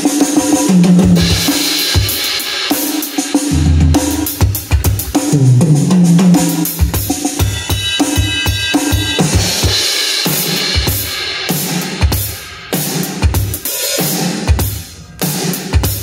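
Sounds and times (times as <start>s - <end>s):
crashing cymbals: 0.0s - 5.2s, 5.8s - 14.8s
electronic tom hits: 0.8s - 2.1s, 3.5s - 7.1s.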